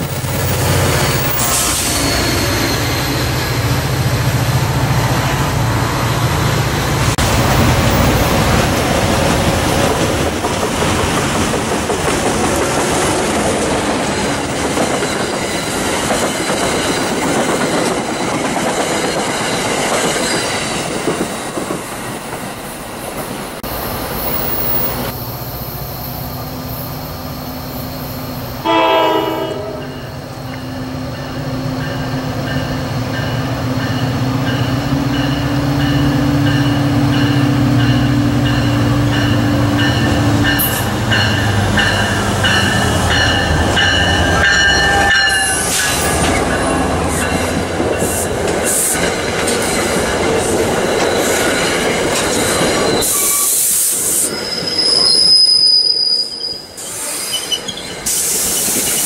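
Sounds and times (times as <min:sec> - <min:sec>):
train coaches rumbling on rails: 0:00.0 - 0:59.0
locomotive horn blast: 0:28.6 - 0:30.1.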